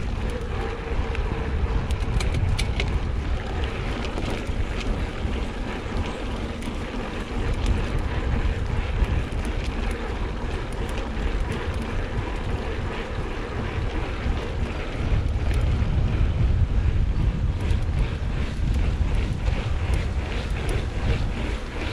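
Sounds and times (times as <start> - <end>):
light clicks and rattles: 0.0 - 12.8
bike tyres rolling on dirt: 0.0 - 21.9
wind buffeting microphone: 0.0 - 21.9.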